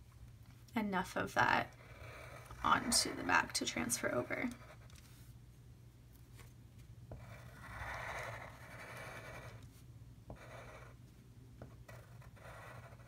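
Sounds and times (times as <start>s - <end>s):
charcoal pencil scratching on paper: 1.6s - 5.2s, 7.1s - 11.0s, 11.6s - 13.0s.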